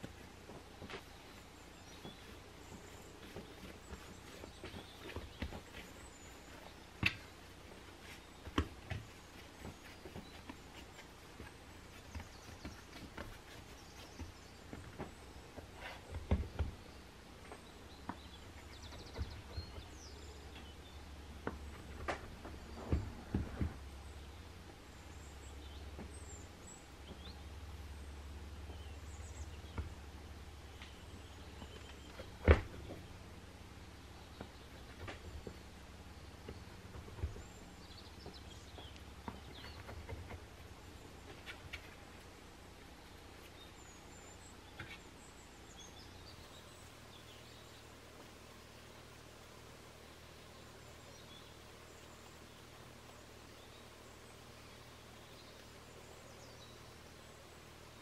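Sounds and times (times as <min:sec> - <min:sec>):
hands kneading dough on wood: 0:00.0 - 0:24.0
low steady hum: 0:00.0 - 0:58.0.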